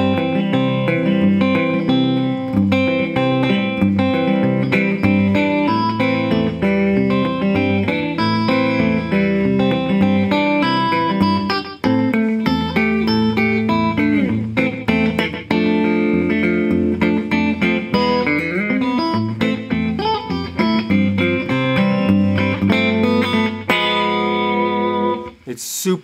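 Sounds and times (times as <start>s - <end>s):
electric guitar fingerpicking: 0.0s - 25.5s.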